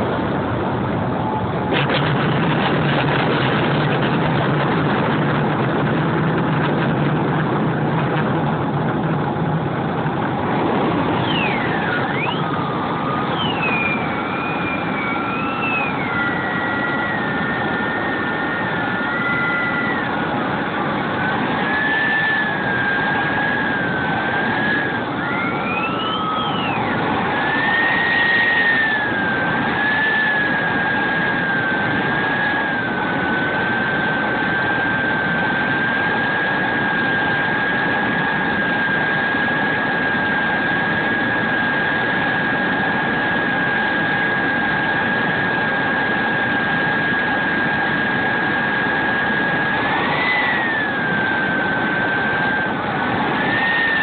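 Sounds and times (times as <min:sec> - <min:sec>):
higher whine: 0:00.0 - 0:54.0
model jet turbine whine: 0:00.0 - 0:54.0.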